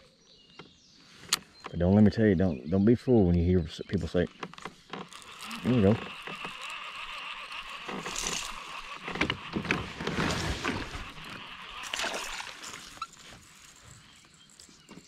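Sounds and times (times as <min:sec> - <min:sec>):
fishing reel clicks: 0:05.0 - 0:09.8, 0:10.7 - 0:15.0
fish splashing at the surface: 0:10.3 - 0:13.8.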